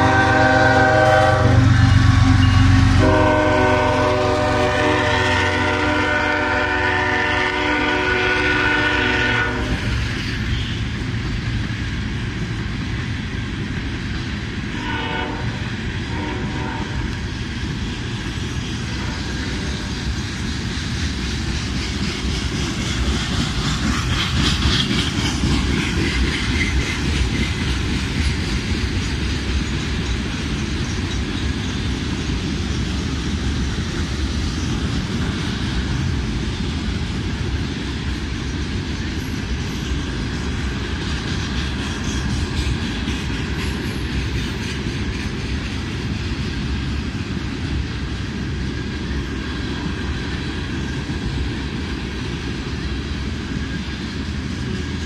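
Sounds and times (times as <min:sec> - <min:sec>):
train horn blasts: 0:00.0 - 0:09.9, 0:14.8 - 0:17.2
freight train wheels clacking: 0:00.0 - 0:55.0.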